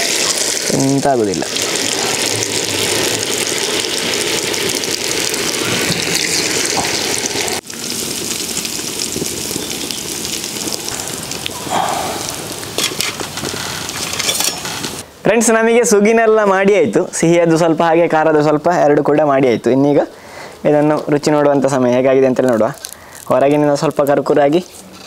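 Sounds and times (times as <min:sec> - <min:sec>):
food deep-frying in oil: 0:00.0 - 0:15.0, 0:21.0 - 0:25.0.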